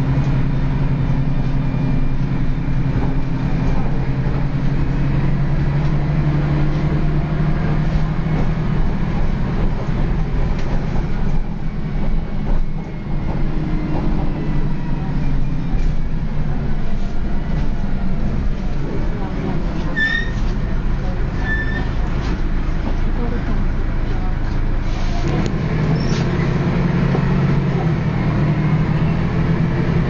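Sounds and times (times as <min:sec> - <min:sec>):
bus diesel engine growling: 0:00.0 - 0:30.0
road rumble: 0:00.0 - 0:30.0.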